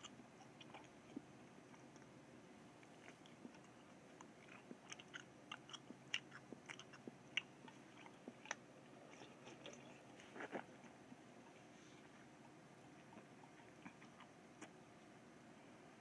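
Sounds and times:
mouth chewing wet clicks: 0.0 - 2.1, 2.8 - 11.0, 13.0 - 14.8.

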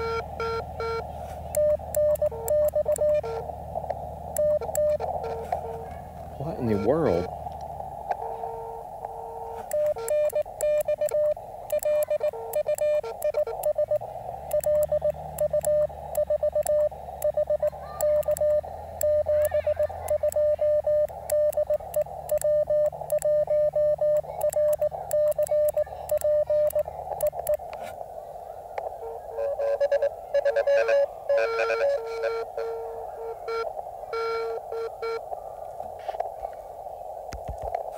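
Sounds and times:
morse code beeps: 0.0 - 3.5, 4.3 - 7.3, 8.1 - 27.7, 28.8 - 35.2
faint lower-pitched morse tone: 0.0 - 7.4, 8.1 - 27.7, 28.9 - 35.3
radio band noise hiss: 0.0 - 37.9.

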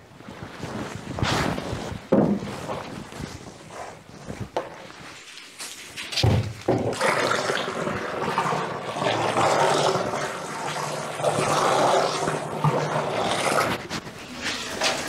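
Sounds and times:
liquid pouring into plastic drum: 6.0 - 13.9.

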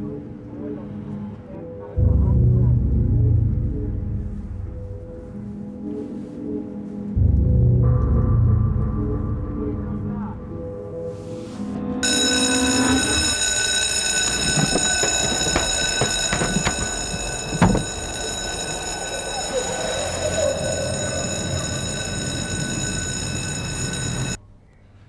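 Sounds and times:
knocks and thud: 14.4 - 18.4.

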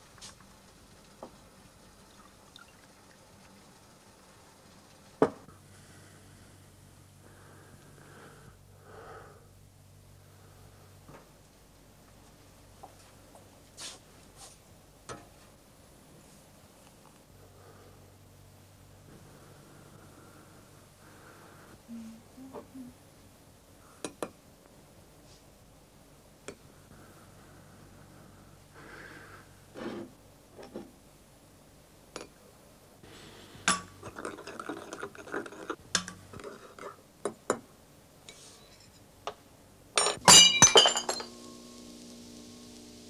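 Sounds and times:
glass bottles clashing and cracking: 40.0 - 41.3
spoon clinking on crockery: 40.0 - 41.3.

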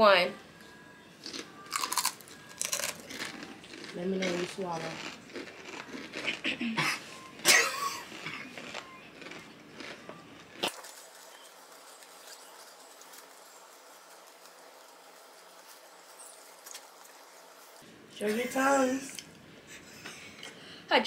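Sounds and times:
crunching tortilla chip: 1.2 - 6.4, 8.0 - 17.2.

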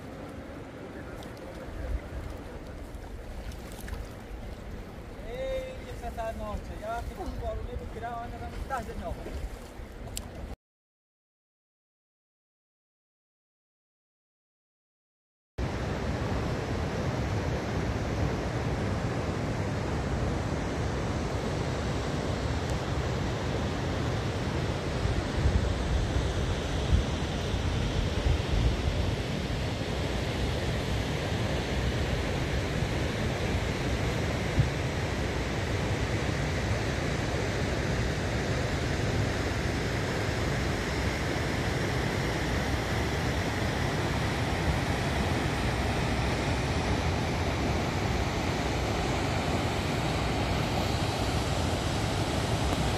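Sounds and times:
wind buffeting microphone: 0.0 - 10.5.

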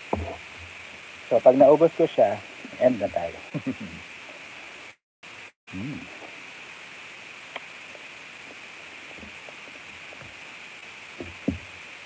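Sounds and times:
steady hiss: 0.0 - 12.0
mouth sounds eating: 2.3 - 4.0, 5.7 - 6.4
short low sounds: 5.7 - 6.2.

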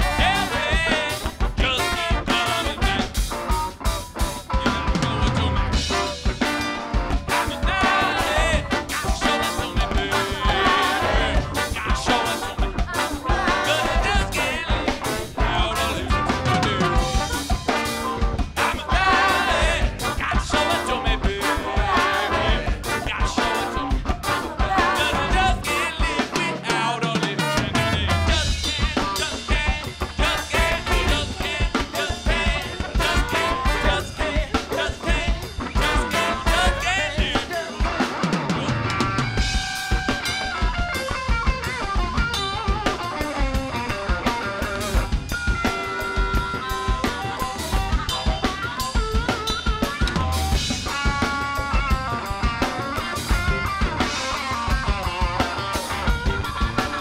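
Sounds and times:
trombone: 0.0 - 41.1
bass guitar: 0.0 - 57.0
drum kit steady beat: 0.0 - 57.0
electric guitar: 0.0 - 57.0
trumpet: 0.0 - 57.0.

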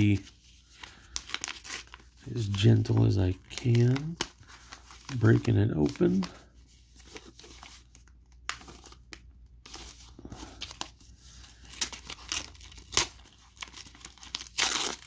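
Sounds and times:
paper crinkling: 0.0 - 15.0
paper envelope tearing: 11.6 - 15.0.

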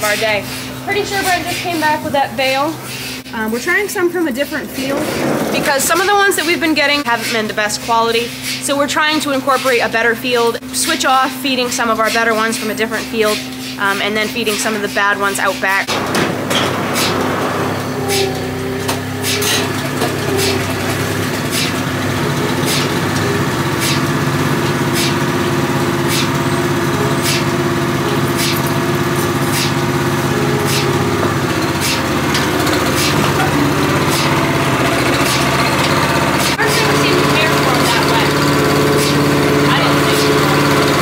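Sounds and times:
small gasoline engine running: 17.0 - 41.0.

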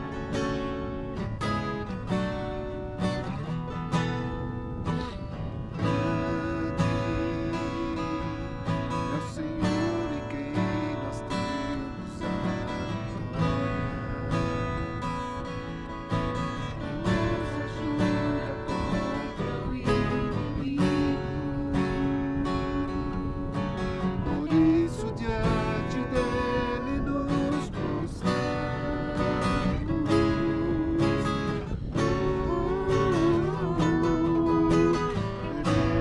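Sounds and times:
acoustic guitar strumming chords: 0.0 - 36.0.

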